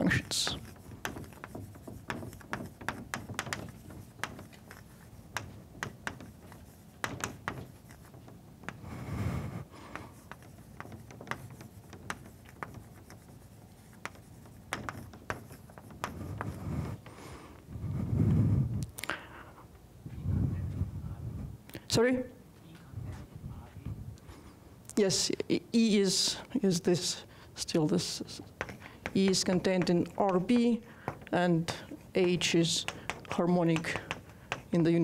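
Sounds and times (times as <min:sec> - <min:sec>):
chalk writing on blackboard: 0:00.0 - 0:17.0, 0:27.8 - 0:35.0.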